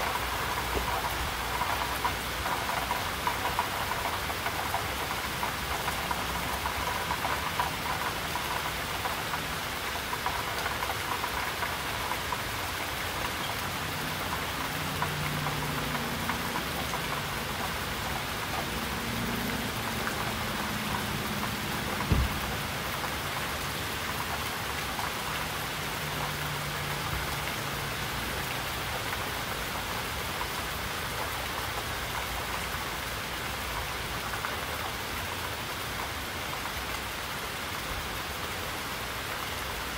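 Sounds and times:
heavy rain pattering: 0.0s - 39.9s
sharp knock: 22.1s - 22.4s.

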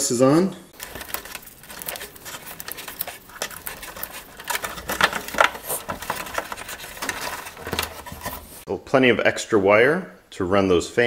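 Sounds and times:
clicks and rustles of wires: 0.7s - 8.7s.

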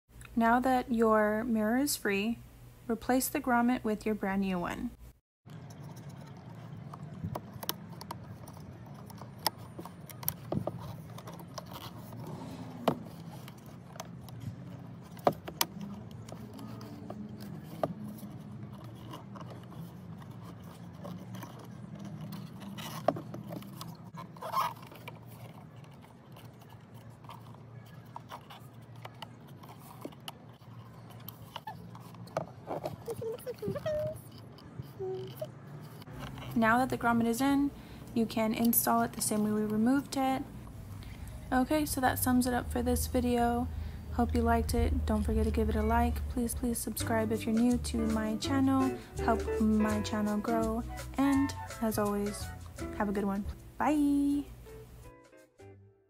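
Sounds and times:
plastic and rubber clicking: 5.6s - 36.5s.

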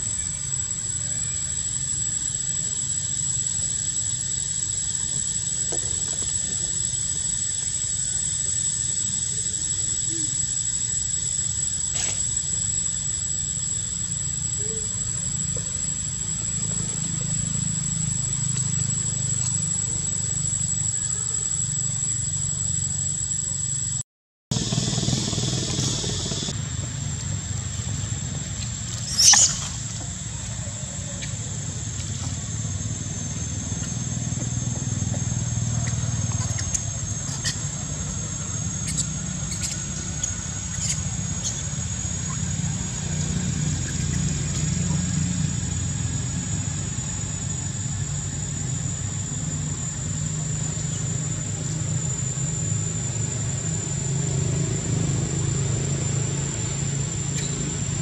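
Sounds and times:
sharp high squeal: 0.0s - 23.9s, 28.9s - 47.6s
thin high whine: 0.0s - 58.0s
faint short chirps: 29.0s - 29.9s, 35.7s - 45.1s.

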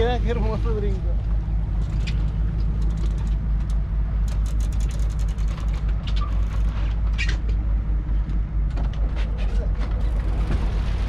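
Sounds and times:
boat engine rumbling: 0.0s - 11.0s
fishing tackle clicking and creaking: 1.7s - 7.6s.

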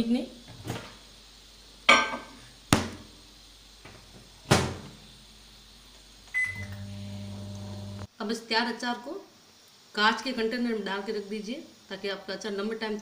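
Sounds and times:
microwave oven humming: 3.8s - 8.1s
microwave door clunks: 4.5s - 4.9s.

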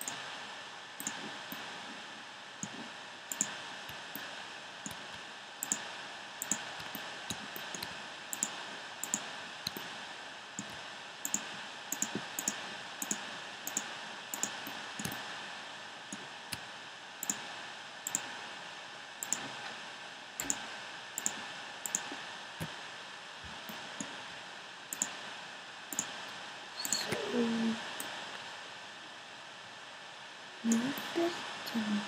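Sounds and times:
mouse and keyboard clicks: 2.6s - 3.6s, 4.9s - 5.8s, 6.4s - 9.9s, 10.6s - 15.2s, 18.1s - 18.3s, 19.2s - 19.5s, 20.4s - 20.6s, 21.2s - 22.7s.

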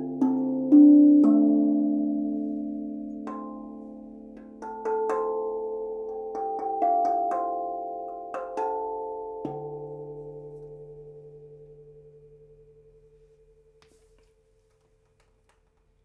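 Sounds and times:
steel tongue drum notes: 0.0s - 14.4s.

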